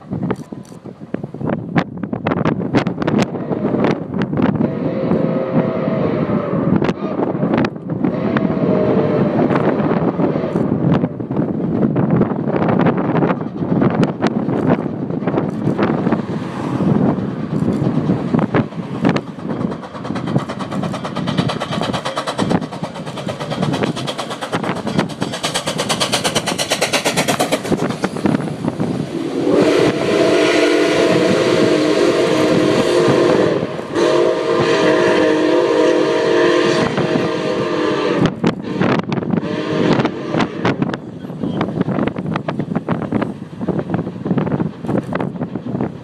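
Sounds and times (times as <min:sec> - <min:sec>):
steam locomotive exhaust beating: 0:00.0 - 0:46.0
steam whistle blasts: 0:04.6 - 0:07.3, 0:08.0 - 0:09.5, 0:29.1 - 0:40.9.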